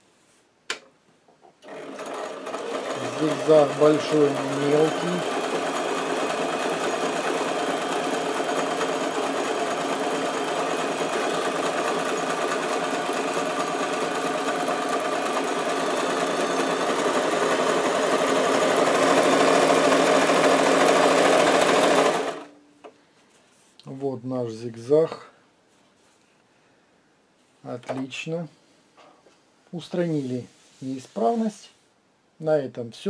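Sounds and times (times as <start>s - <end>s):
sewing machine stitching: 1.6s - 22.5s.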